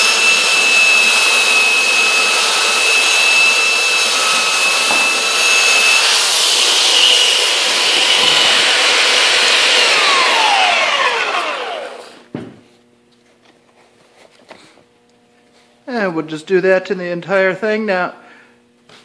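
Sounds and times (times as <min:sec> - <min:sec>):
belt sander on wood: 0:00.0 - 0:12.3.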